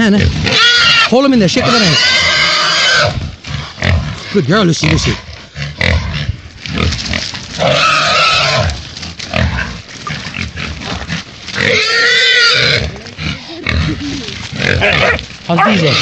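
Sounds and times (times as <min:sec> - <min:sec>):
pig squealing: 0:00.1 - 0:07.0, 0:07.6 - 0:16.0
scuffling: 0:05.9 - 0:16.0.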